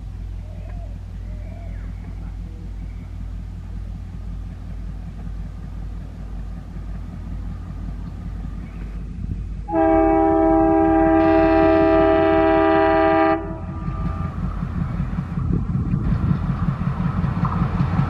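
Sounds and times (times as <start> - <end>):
diesel locomotive engine rumble: 0.0 - 18.0
locomotive horn: 9.7 - 14.4.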